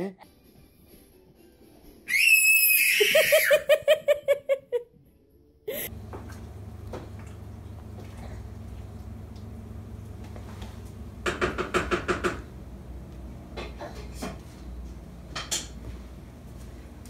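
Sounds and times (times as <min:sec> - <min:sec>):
child squealing: 0:02.1 - 0:03.7
child giggling: 0:02.8 - 0:04.9.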